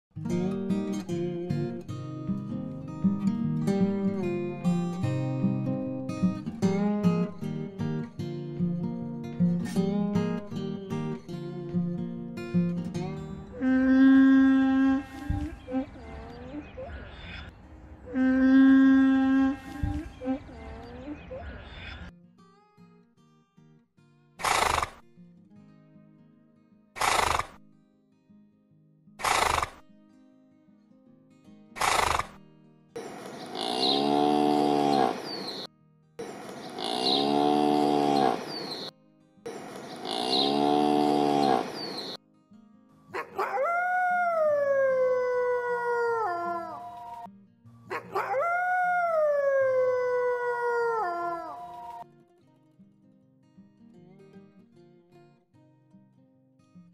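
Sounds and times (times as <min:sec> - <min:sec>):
cow mooing: 0:13.6 - 0:15.2, 0:18.1 - 0:19.7, 0:33.4 - 0:35.6, 0:36.7 - 0:38.9, 0:40.0 - 0:42.1
horse calling: 0:39.8 - 0:42.2
dog howling: 0:43.2 - 0:47.3, 0:47.9 - 0:52.0.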